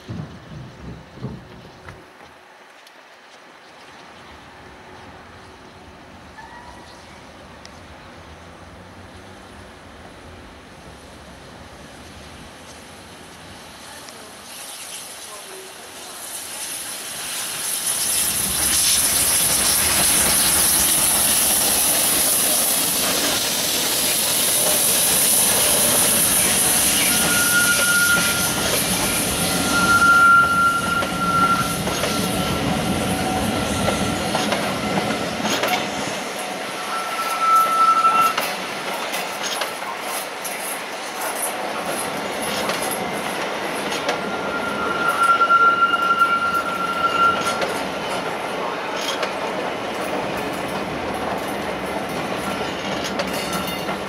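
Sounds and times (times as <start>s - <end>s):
wheels clicking over rail joints: 0.0s - 2.4s, 19.4s - 36.5s, 38.2s - 44.3s, 47.3s - 54.0s
train wheels squealing on rails: 6.3s - 7.2s, 14.0s - 54.0s
steam locomotive hissing: 10.8s - 54.0s.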